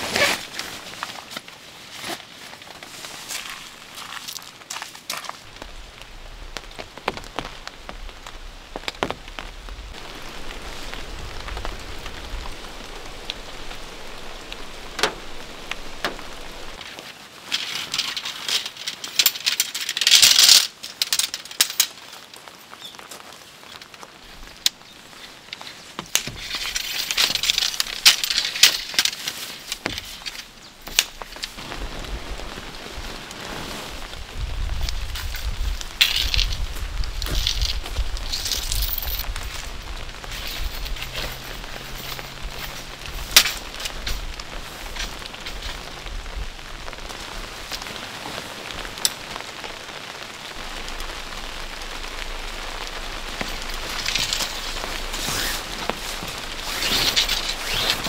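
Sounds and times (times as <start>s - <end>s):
rain pattering on tent fabric: 0.0s - 58.0s
rustling: 0.0s - 58.0s
wind rumble on microphone: 5.5s - 16.8s, 31.5s - 49.0s.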